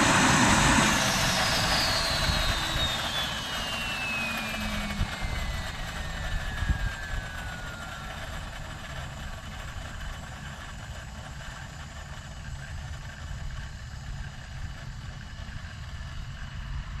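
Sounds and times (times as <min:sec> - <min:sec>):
steady low rumble: 0:00.0 - 0:10.1
model helicopter turbine whining: 0:00.0 - 0:17.0.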